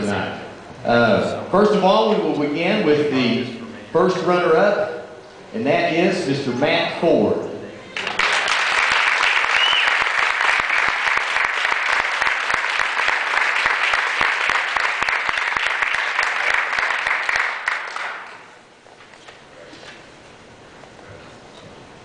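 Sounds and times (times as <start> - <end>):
audience applauding: 8.0 - 18.5.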